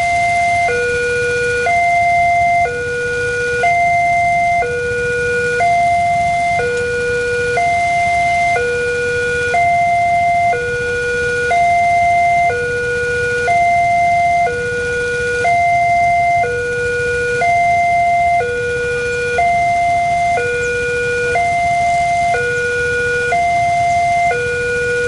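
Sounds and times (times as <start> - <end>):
level crossing alarm two tones: 0.0 - 25.0.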